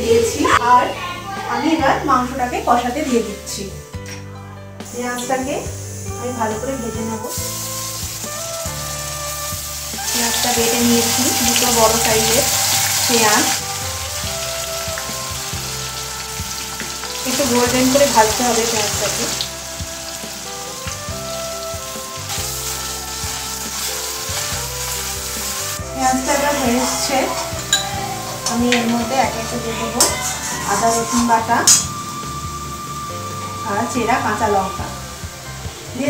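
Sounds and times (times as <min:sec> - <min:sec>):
onion sizzling in hot oil: 0:04.8 - 0:36.0
spatula scraping pan: 0:26.4 - 0:31.9.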